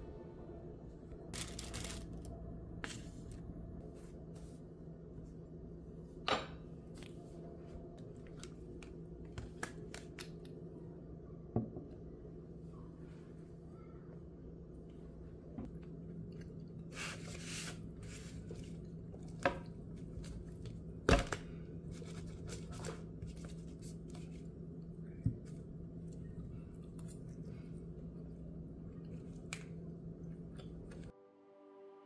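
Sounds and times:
steady low hum: 0.0s - 31.1s.

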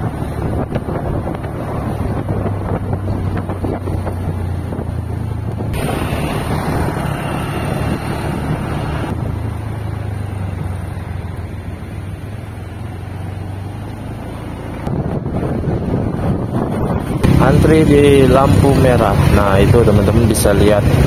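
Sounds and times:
wind on microphone: 0.0s - 9.6s, 14.6s - 21.0s
vehicle engine hum: 0.0s - 21.0s.

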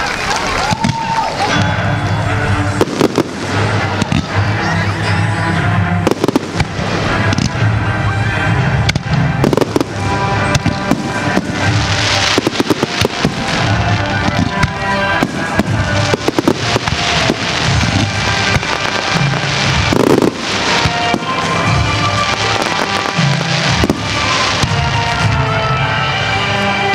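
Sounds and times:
music: 0.0s - 26.9s
firework shells bursting with crackling: 2.7s - 4.7s, 6.0s - 7.7s, 8.8s - 25.9s.

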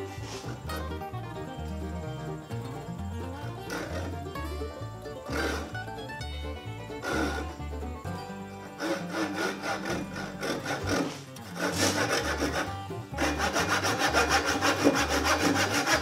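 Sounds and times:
hand saw cutting wood: 0.0s - 0.8s, 3.6s - 4.3s, 5.3s - 5.8s, 7.0s - 7.6s, 8.7s - 16.0s.

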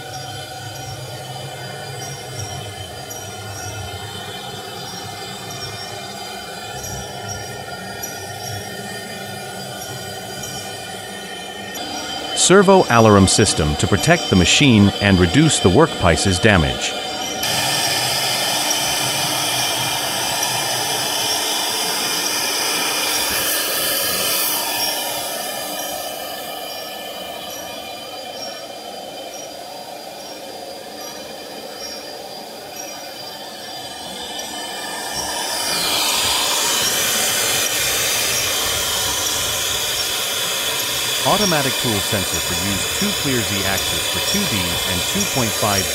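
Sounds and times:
router spindle whine: 0.0s - 45.9s
wood cutting hiss: 8.2s - 28.7s, 33.1s - 45.9s.

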